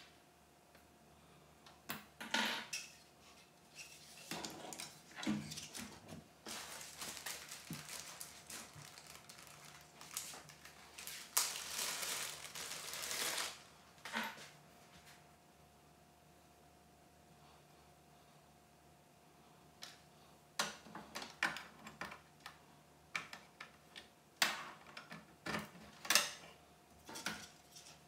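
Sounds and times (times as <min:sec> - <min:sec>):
cables rustling: 0:02.8 - 0:14.5.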